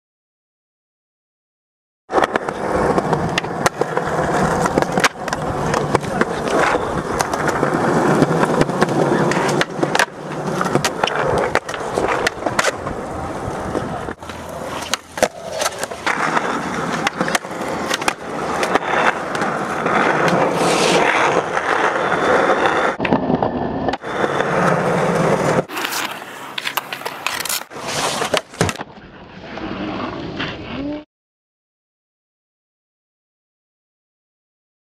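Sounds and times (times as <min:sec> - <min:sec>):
skateboard popping and landing clacks: 0:02.1 - 0:29.0
skateboard wheels rolling on concrete: 0:02.1 - 0:31.0.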